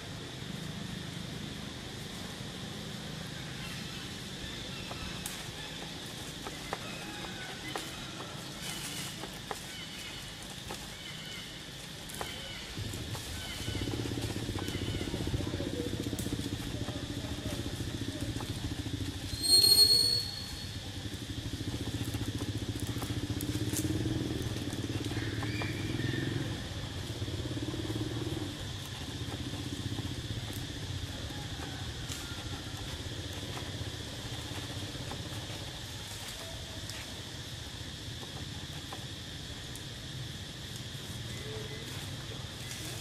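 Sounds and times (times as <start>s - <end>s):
high insect buzz: 0.0s - 43.0s
short shrill squeal: 19.3s - 20.7s.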